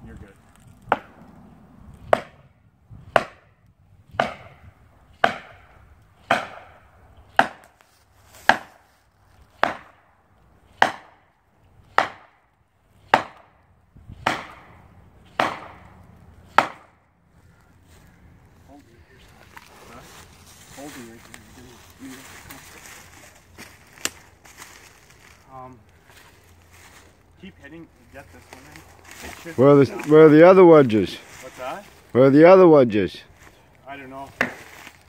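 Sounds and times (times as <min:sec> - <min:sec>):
hammer striking wedge: 0:03.2 - 0:03.4, 0:06.3 - 0:06.7, 0:11.9 - 0:12.3, 0:13.1 - 0:13.5, 0:15.4 - 0:15.8, 0:16.5 - 0:16.9.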